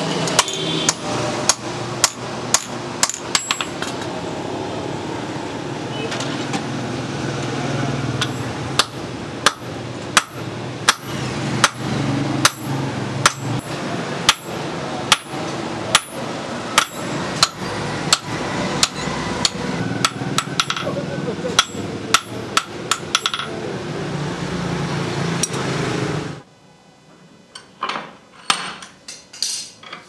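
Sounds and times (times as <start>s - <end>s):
hammer striking hot steel on anvil: 0.3s - 3.8s, 8.2s - 20.9s, 21.6s - 23.6s.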